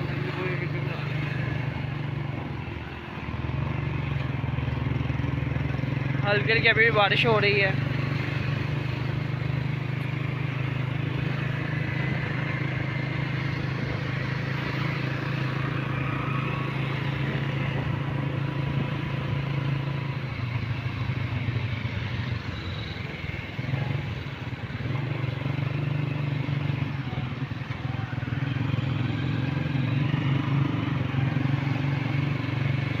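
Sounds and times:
motorcycle engine running: 0.0 - 33.0
road and wind noise: 0.0 - 33.0.

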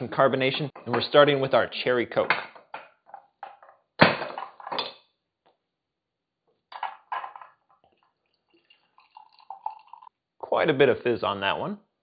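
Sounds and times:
liquid pouring through strainer: 7.7 - 10.1.

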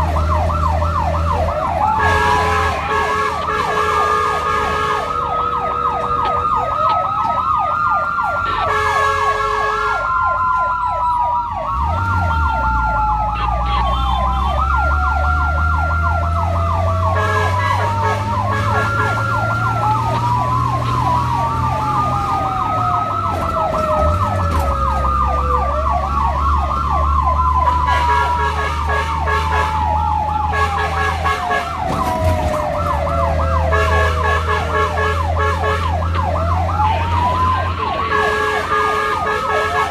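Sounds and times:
pulsing siren tone: 0.0 - 39.9
sirens yelping and wailing: 0.0 - 39.9
vehicle engine rumbling: 0.0 - 39.9.

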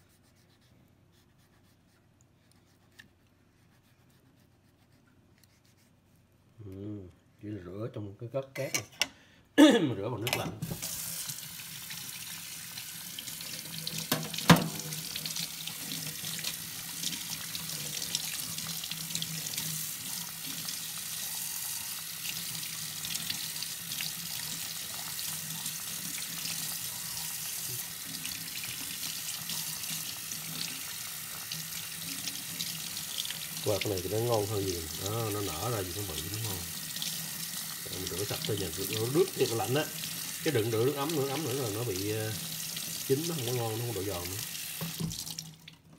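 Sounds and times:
faucet water running into sink: 10.6 - 45.9.

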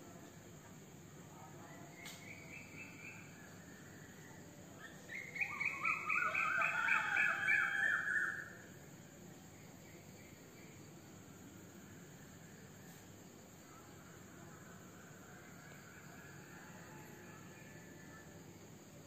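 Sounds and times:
crickets chirring: 0.0 - 19.0.

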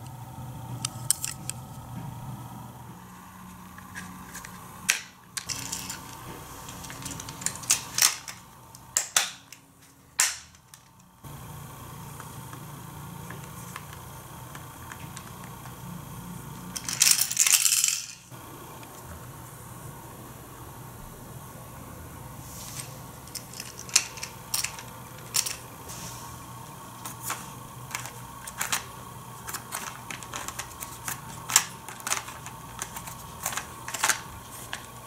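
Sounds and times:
plastic roller drum clatter: 27.2 - 34.9.

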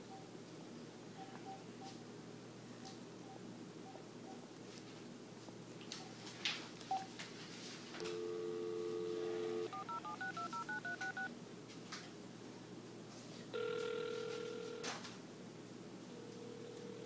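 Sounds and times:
dial tone: 8.0 - 11.3, 13.6 - 15.0, 16.2 - 17.0
keypad tones: 8.0 - 11.3, 13.6 - 15.0.

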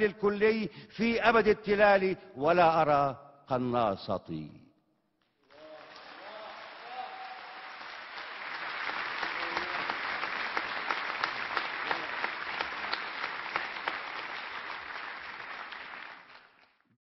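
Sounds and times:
audience applauding: 5.4 - 17.0.

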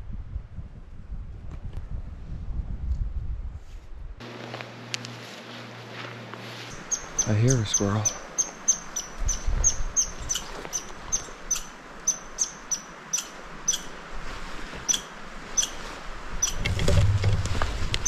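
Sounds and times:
rustle of movement: 3.6 - 18.0
squirrel chirping: 6.7 - 13.9, 14.9 - 15.8, 16.4 - 16.6.

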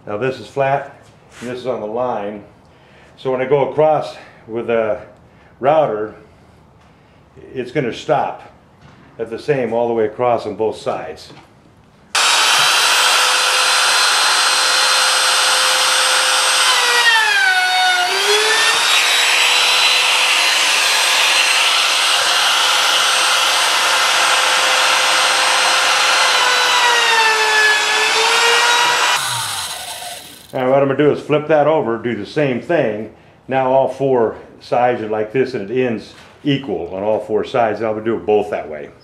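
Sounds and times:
router cutting wood: 12.2 - 30.6.

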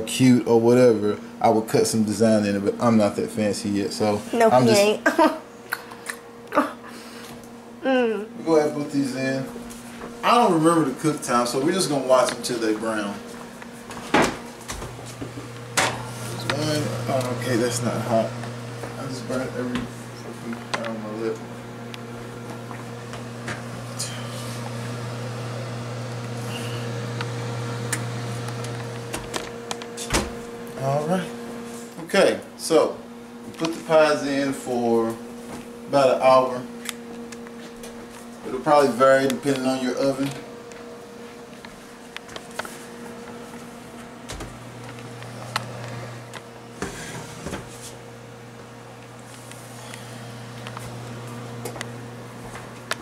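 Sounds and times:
appliance hum: 0.0 - 53.0.

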